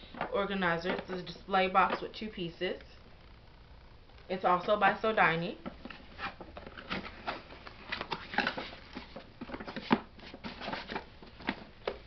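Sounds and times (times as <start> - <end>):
cardboard box rustling and scraping: 5.8 - 11.8.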